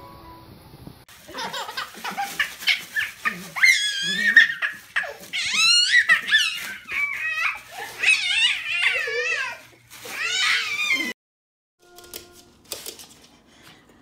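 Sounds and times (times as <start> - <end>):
plastic bag crinkling: 1.1 - 11.1
baby shrieking with laughter: 1.5 - 11.2
small dog yipping: 2.6 - 9.4.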